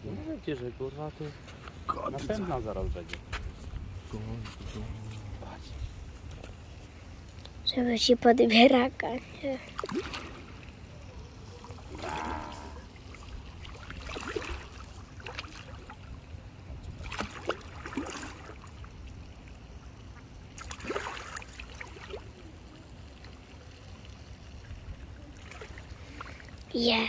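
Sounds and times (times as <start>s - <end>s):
fish splashing at water surface: 9.7s - 16.2s, 17.0s - 19.2s, 20.1s - 22.4s.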